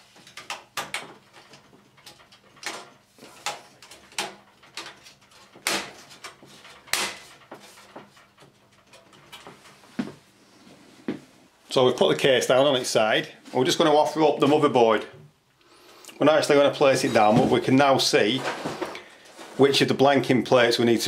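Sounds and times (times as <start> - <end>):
metal plate clicking and knocking: 0.1 - 9.7.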